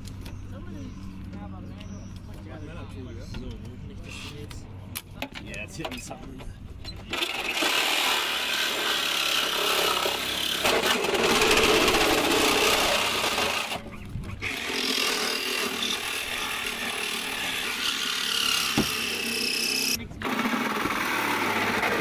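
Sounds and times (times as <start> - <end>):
reciprocating saw cutting sheet metal: 7.1 - 22.0.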